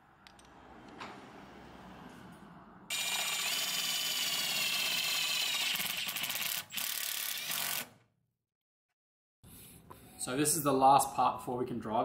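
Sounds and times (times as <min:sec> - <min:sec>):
small mechanism whining and clicking: 0:02.9 - 0:08.0.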